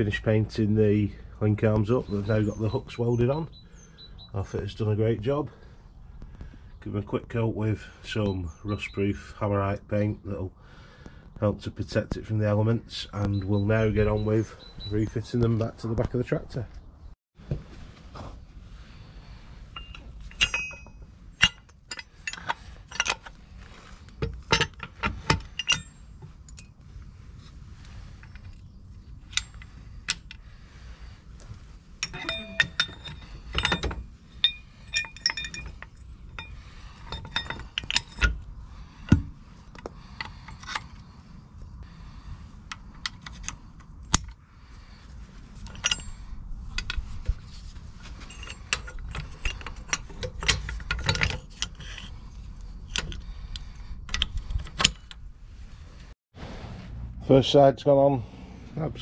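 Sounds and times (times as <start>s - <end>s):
metal clinks and knocks: 19.6s - 26.9s, 31.4s - 41.2s, 45.5s - 55.3s.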